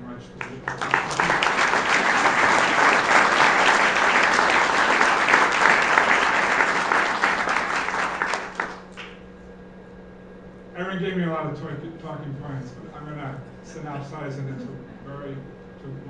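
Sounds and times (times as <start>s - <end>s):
audience applauding: 0.4s - 9.2s.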